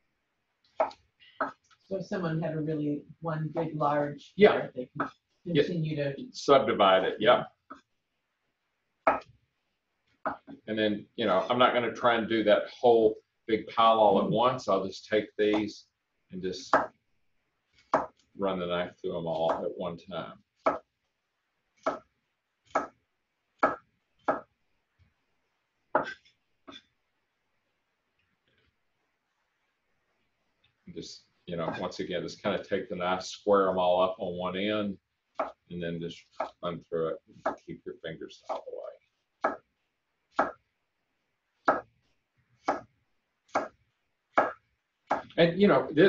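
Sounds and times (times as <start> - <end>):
knife chopping carrots on wood: 9.1 - 9.3, 16.7 - 17.0, 17.8 - 18.2, 20.6 - 20.9, 21.8 - 23.0, 23.6 - 24.5, 39.4 - 39.7, 40.3 - 40.6, 41.6 - 42.0, 42.6 - 42.9, 43.5 - 45.4.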